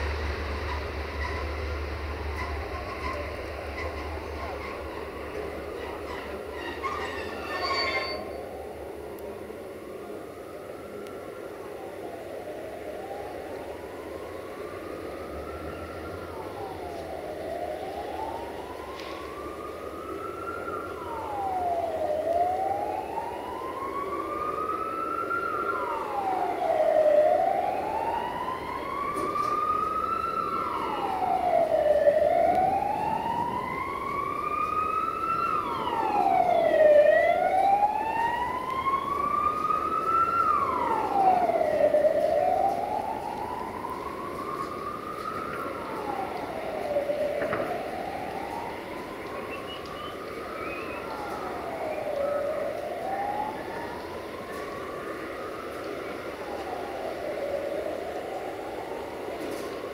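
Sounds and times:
fainter higher-pitched siren wail: 4.8 - 59.9
siren wailing: 4.8 - 59.9.

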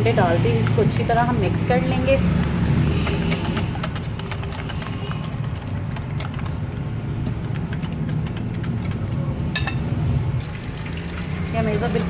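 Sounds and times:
whisk clicking against glass bowl: 2.3 - 9.8
ringing clink: 9.6 - 9.9.

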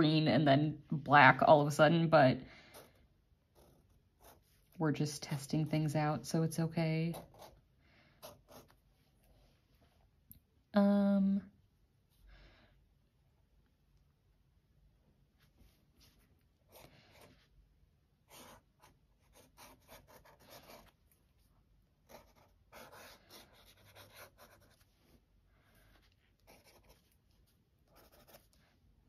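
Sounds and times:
pen nib scratching on paper: 18.3 - 21.0, 22.0 - 24.9, 26.0 - 27.2, 27.9 - 28.6.

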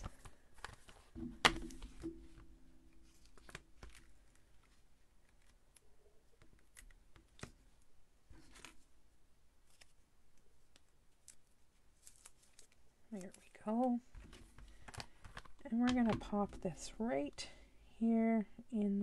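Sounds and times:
plastic case clacking down: 0.0 - 2.5
paper rustling: 0.0 - 5.6, 8.3 - 8.9, 9.6 - 10.0, 10.6 - 16.4.

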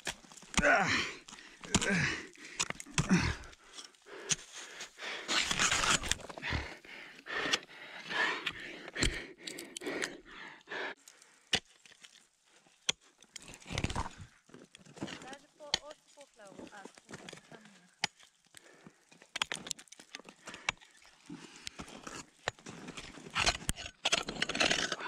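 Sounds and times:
strikes and scrapes on ice: 0.0 - 6.4, 11.5 - 25.0
heavy panting: 6.4 - 11.0.

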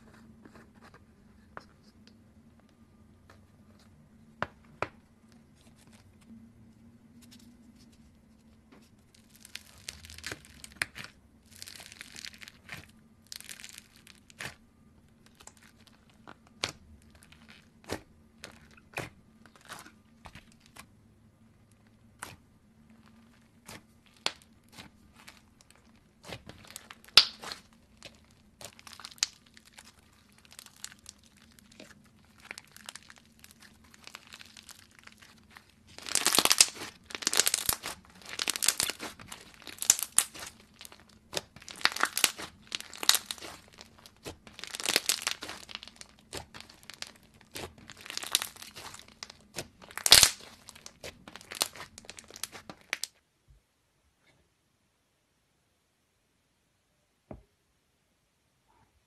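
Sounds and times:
slime crackling and tearing: 9.1 - 20.9, 21.5 - 53.2.

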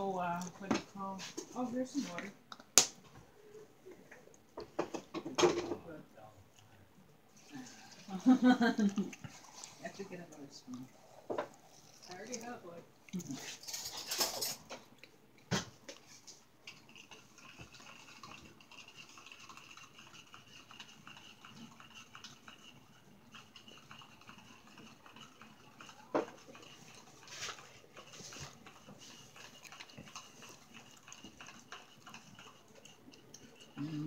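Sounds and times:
cutlery and plates clinking: 13.5 - 14.9.

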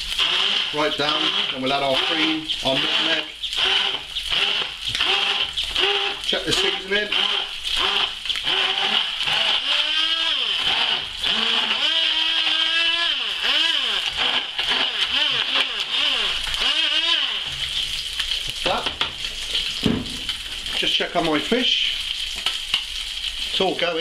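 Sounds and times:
fish frying in a pan: 0.0 - 24.0
stick blender motor whine: 0.1 - 17.5.

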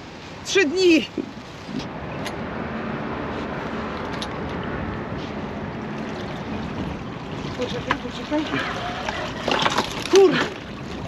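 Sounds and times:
motor vehicle passing: 1.4 - 9.8.

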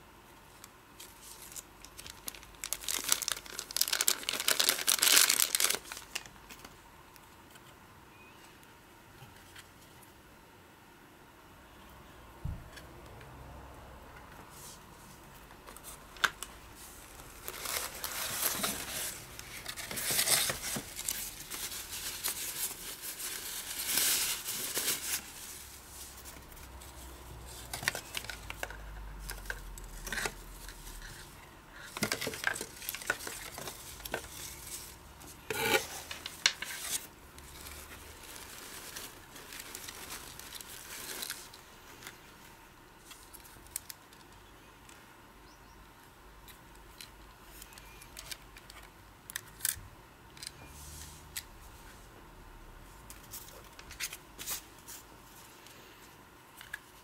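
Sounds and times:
plastic packaging crinkling: 1.0 - 6.8, 15.7 - 26.7, 27.5 - 42.4.

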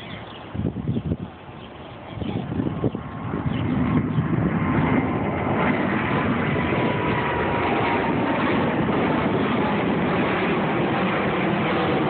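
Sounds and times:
faint jet whine: 0.0 - 12.0
jet engine roar: 0.0 - 12.0.

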